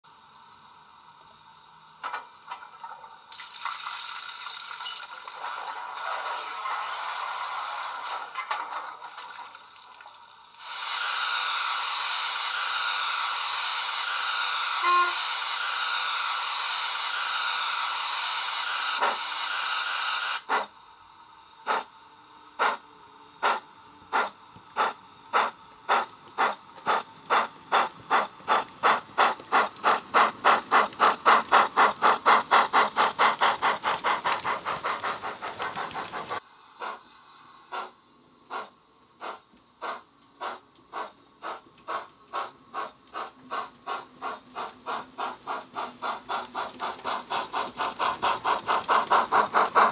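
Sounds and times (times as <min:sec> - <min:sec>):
steam hiss from small speaker: 0:03.1 - 0:08.4, 0:09.0 - 0:49.9
steam locomotive exhaust chuffs: 0:10.5 - 0:20.8, 0:21.4 - 0:22.0, 0:22.6 - 0:49.9.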